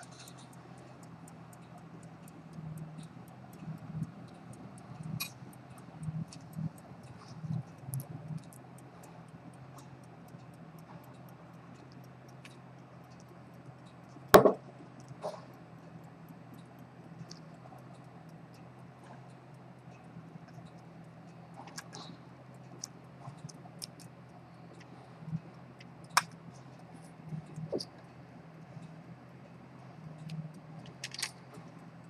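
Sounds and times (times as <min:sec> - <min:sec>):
small clicks and taps: 0:00.0 - 0:29.0, 0:30.1 - 0:32.0
low steady hum: 0:00.0 - 0:32.0
sharp knock: 0:14.4 - 0:14.6.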